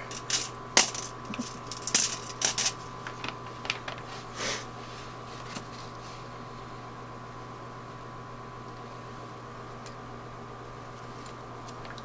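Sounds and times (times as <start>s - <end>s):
metal parts clicking and rattling: 0.0s - 4.0s.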